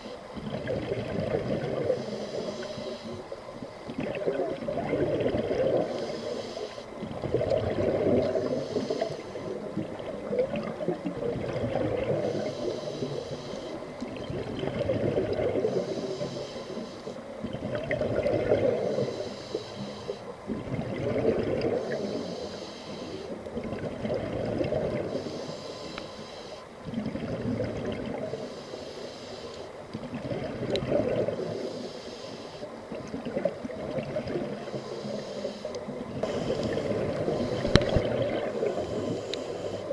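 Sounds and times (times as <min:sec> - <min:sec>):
regulator hiss on inhale: 0:00.0 - 0:00.4, 0:01.3 - 0:03.9, 0:05.5 - 0:10.0, 0:12.0 - 0:14.2, 0:15.3 - 0:17.5, 0:18.5 - 0:20.5, 0:21.6 - 0:23.6, 0:24.9 - 0:27.0, 0:28.2 - 0:30.0, 0:31.2 - 0:33.0, 0:34.4 - 0:39.9
exhaled bubbles rushing: 0:00.4 - 0:01.9, 0:03.9 - 0:05.9, 0:07.2 - 0:08.4, 0:09.8 - 0:12.2, 0:14.2 - 0:15.6, 0:17.5 - 0:18.9, 0:20.5 - 0:21.9, 0:23.6 - 0:25.1, 0:26.9 - 0:28.2, 0:30.0 - 0:31.4, 0:36.2 - 0:38.8.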